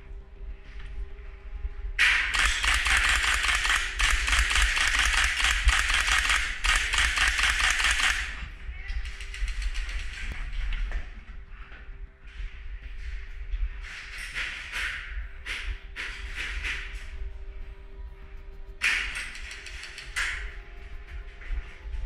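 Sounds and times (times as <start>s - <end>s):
airsoft guns firing full auto: 2.2s - 8.4s.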